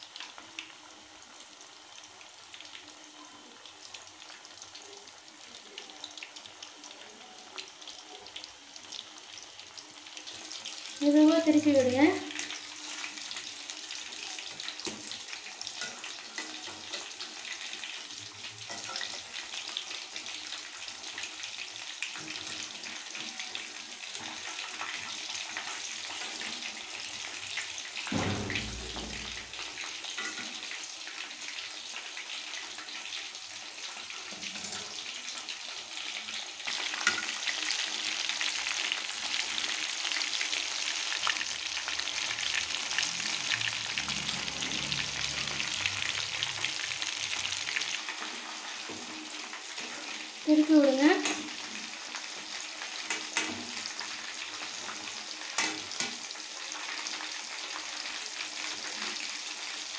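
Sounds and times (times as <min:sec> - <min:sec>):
chicken deep-frying in hot oil: 0:00.0 - 0:59.9
low thump: 0:28.1 - 0:29.5.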